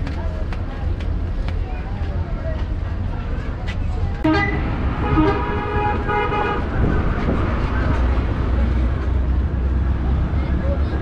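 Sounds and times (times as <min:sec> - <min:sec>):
traffic rumble: 0:00.0 - 0:11.0
vehicle horn honking: 0:04.2 - 0:06.7.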